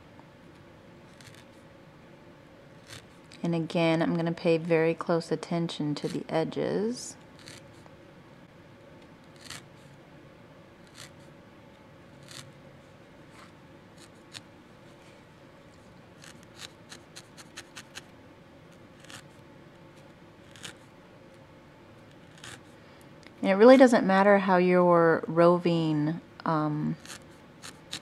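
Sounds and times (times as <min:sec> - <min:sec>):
felting needle jabbing wool: 0:07.4 - 0:07.6, 0:09.3 - 0:09.7, 0:10.8 - 0:11.2, 0:16.2 - 0:18.1, 0:19.0 - 0:19.4, 0:20.4 - 0:20.9, 0:22.2 - 0:22.7, 0:26.9 - 0:28.0.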